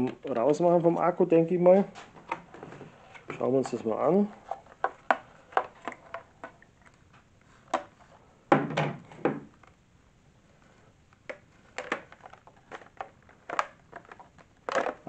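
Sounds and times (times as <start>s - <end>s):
plastic clatter: 11.3s - 15.0s.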